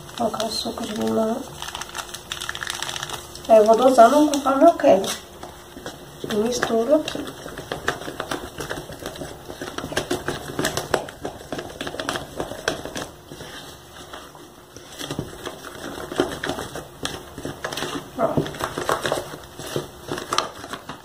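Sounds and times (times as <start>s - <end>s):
wooden spoon scraping plastic tub: 3.7s - 20.5s.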